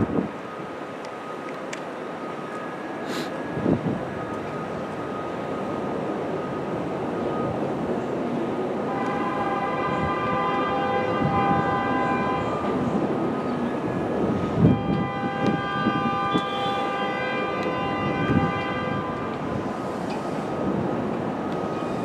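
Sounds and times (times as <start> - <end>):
train rumble: 0.0 - 22.0
train horn blasts: 8.9 - 12.9, 14.6 - 19.5.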